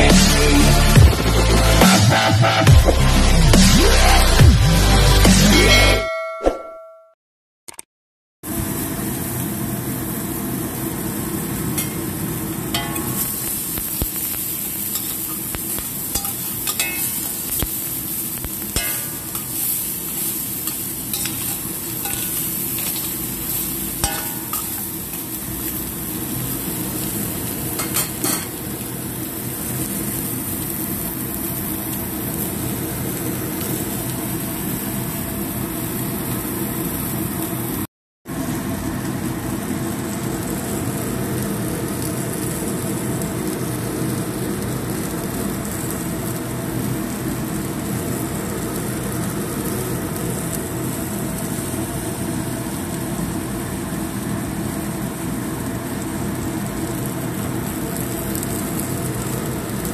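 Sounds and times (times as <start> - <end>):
food sizzling in wok: 0.0 - 4.8, 8.4 - 59.9.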